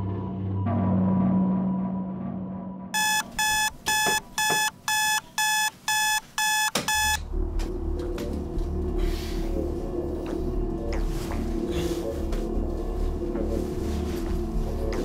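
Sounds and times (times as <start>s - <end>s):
alarm clock beeping: 3.0s - 7.2s.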